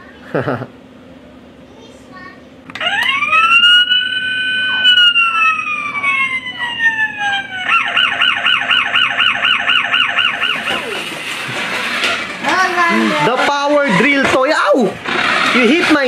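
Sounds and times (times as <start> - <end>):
toy siren wail: 2.7 - 11.2
warbling siren yelp: 2.7 - 11.5.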